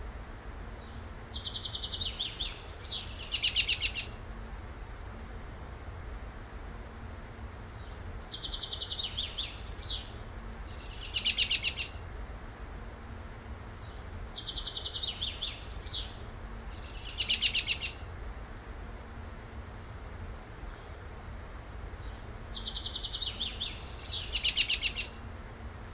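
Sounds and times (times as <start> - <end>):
bird chirping: 0.0 - 19.8, 20.7 - 25.8.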